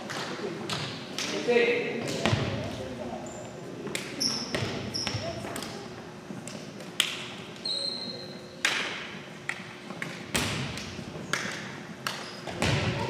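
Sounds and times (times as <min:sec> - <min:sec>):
volleyballs thumping on gym floor: 0:02.0 - 0:02.8, 0:03.9 - 0:05.7, 0:08.6 - 0:13.0.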